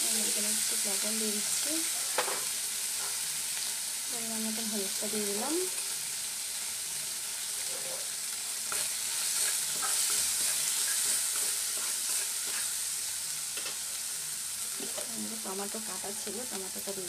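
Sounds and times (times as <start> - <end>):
spice paste sizzling in oil: 0.0 - 17.0
spatula scraping a pan: 2.0 - 3.4, 7.4 - 14.1.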